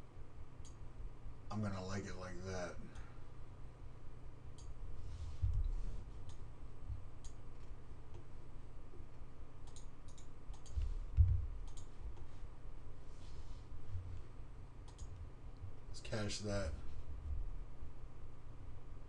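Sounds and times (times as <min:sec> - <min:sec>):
low dull thumps: 0:05.4 - 0:05.8, 0:10.8 - 0:11.6
mouse and keyboard clicks: 0:11.6 - 0:12.3, 0:14.8 - 0:15.2.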